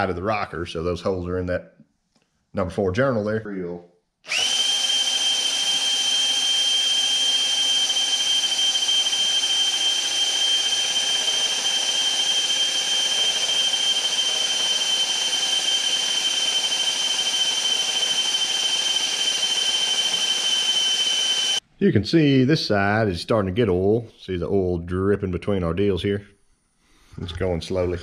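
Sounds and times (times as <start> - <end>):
electric drill whining: 4.3 - 21.6.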